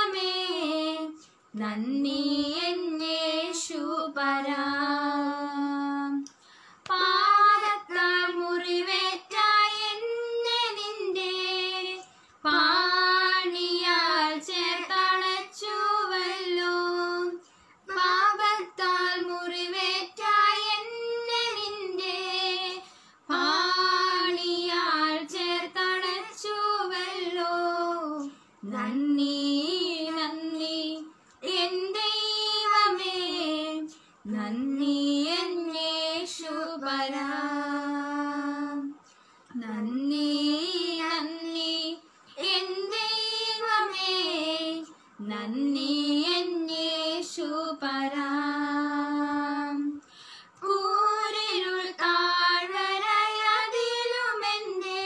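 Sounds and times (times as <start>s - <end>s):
two women singing unaccompanied: 0.0s - 55.0s.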